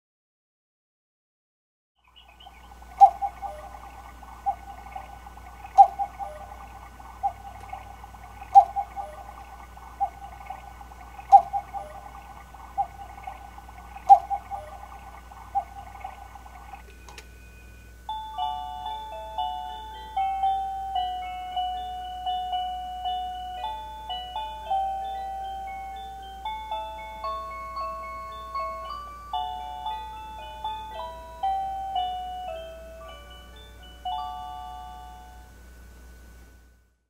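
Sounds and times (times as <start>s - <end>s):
cuckoo clock calling: 2.1s - 35.6s
music box melody: 16.7s - 35.6s.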